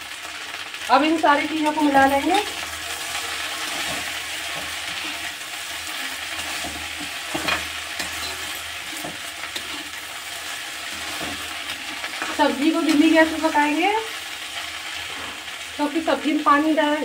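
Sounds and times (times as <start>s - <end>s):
vegetables sizzling in oil: 0.0s - 17.0s
metal spatula scraping pan: 1.9s - 13.6s, 14.9s - 15.6s.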